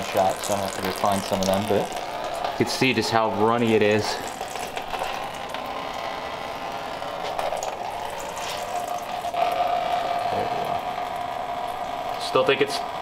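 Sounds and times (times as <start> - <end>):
oil pouring into a pan: 0.0 - 5.8, 7.2 - 10.2.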